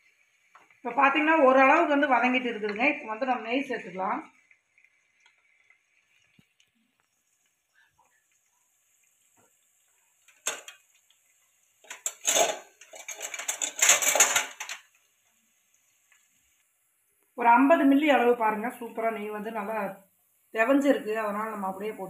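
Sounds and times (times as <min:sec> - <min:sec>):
spoon scraping metal vessel: 0:11.8 - 0:14.8.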